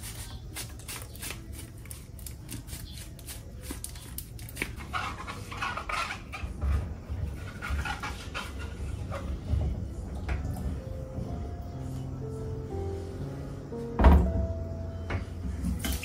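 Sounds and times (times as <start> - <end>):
wet apples clicking and knocking: 0.0 - 4.9
squeaky rubbing sounds: 0.0 - 9.6.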